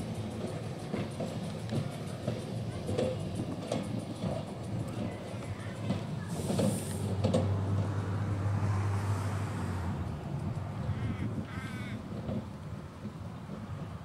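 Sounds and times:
electric tram humming: 0:00.0 - 0:14.0
crow cawing: 0:10.8 - 0:12.0.

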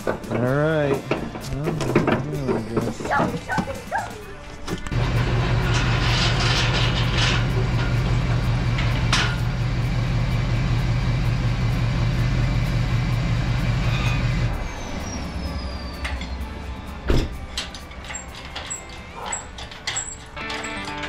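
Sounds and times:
music: 0:00.0 - 0:07.8, 0:15.3 - 0:21.0
voice: 0:00.3 - 0:04.4
vehicle engine running: 0:04.9 - 0:17.1.

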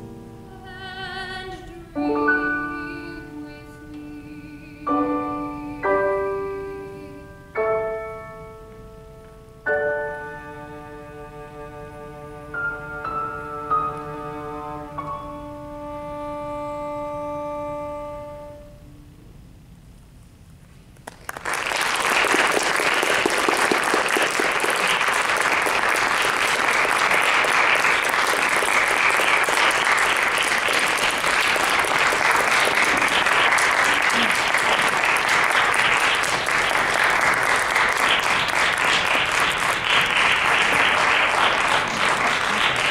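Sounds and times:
audience applause: 0:21.0 - 0:42.9.

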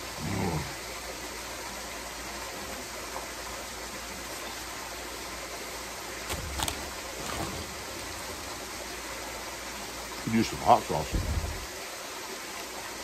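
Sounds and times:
waterfall rushing: 0:06.3 - 0:12.2.

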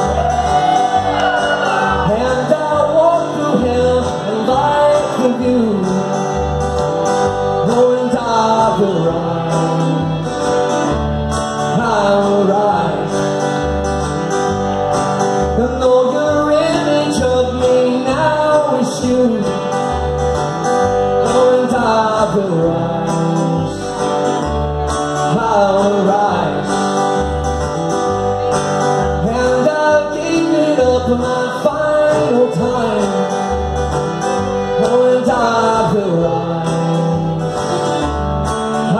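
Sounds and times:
fiddle playing: 0:00.0 - 0:05.4, 0:31.7 - 0:36.4
man singing: 0:00.0 - 0:13.6, 0:15.4 - 0:20.2, 0:20.8 - 0:24.2, 0:25.1 - 0:27.2, 0:28.9 - 0:38.1
acoustic guitar strumming: 0:00.0 - 0:38.9.

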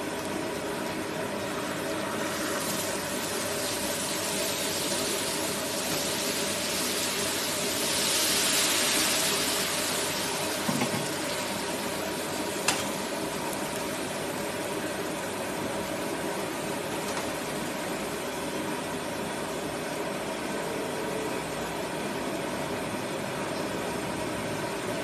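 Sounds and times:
batter hissing on hot griddle: 0:01.5 - 0:14.1.

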